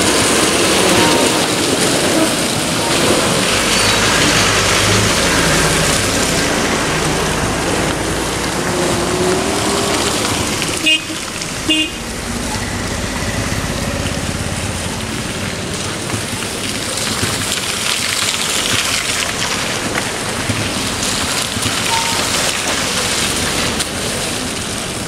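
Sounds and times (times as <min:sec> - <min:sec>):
vehicle engines: 0:00.0 - 0:25.0
vehicle horn toots: 0:10.8 - 0:12.1.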